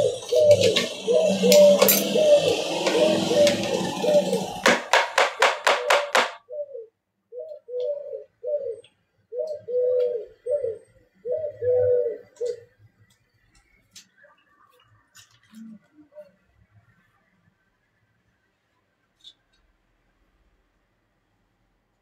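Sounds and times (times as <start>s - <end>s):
low cooing bird calls: 0.0s - 4.7s, 5.7s - 12.8s, 15.4s - 16.6s
sharp knocks: 4.5s - 6.4s.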